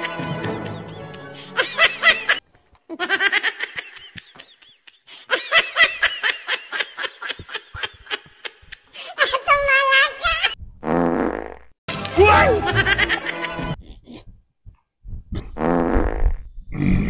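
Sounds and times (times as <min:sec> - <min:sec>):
music: 0:00.0 - 0:01.7, 0:11.9 - 0:13.8
high-pitched laughter: 0:12.4 - 0:13.8.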